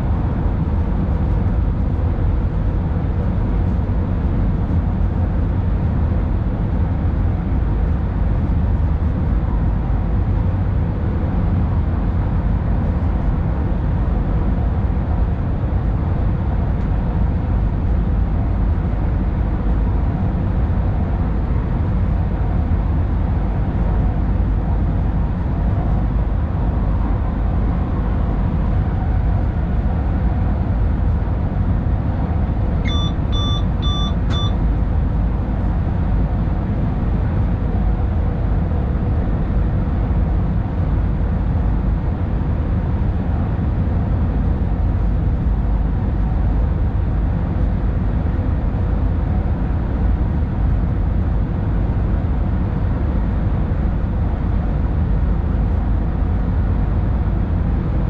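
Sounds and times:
train rumbling through tunnel: 0.0 - 58.0
short electronic beeps: 32.9 - 34.6.

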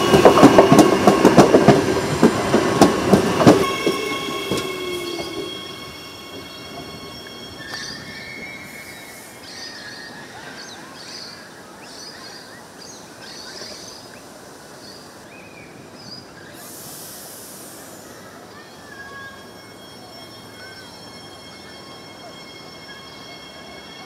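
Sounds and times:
electric train standing: 0.0 - 9.4, 19.3 - 24.0
birds chirping: 0.0 - 16.6
high hiss: 16.4 - 18.6.

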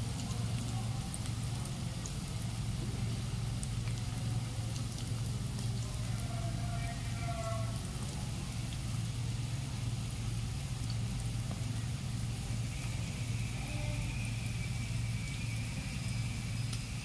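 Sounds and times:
deep-frying sizzle and crackles: 0.0 - 17.0
steady low hum: 7.7 - 17.0
faint brief tone: 12.8 - 16.3.

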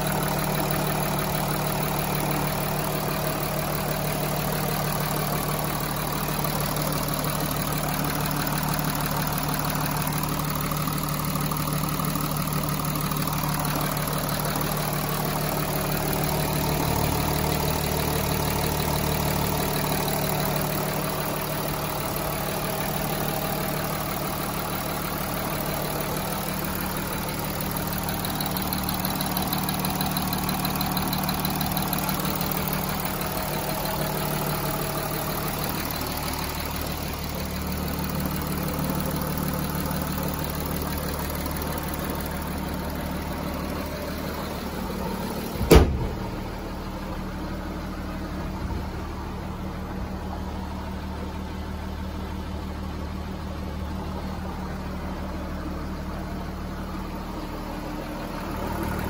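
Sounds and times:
diesel engine idling: 0.0 - 59.0
car bonnet thump shut: 45.6 - 46.4.

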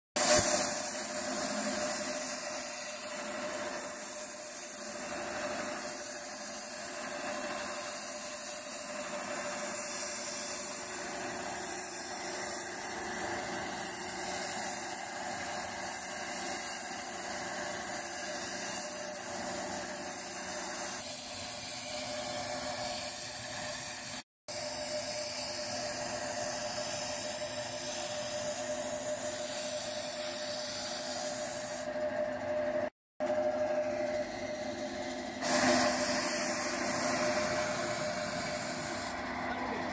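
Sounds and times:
spray gun hissing: 0.2 - 31.9, 35.4 - 39.2
steady hum: 24.6 - 39.9.

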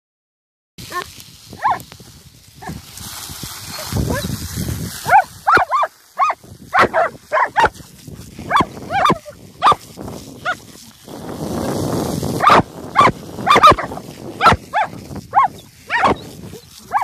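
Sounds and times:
dogs barking in high yelps: 0.9 - 1.8, 3.7 - 4.3, 5.0 - 7.8, 8.5 - 9.8, 10.4 - 10.7, 12.4 - 17.0
water jet spraying: 2.6 - 15.3.

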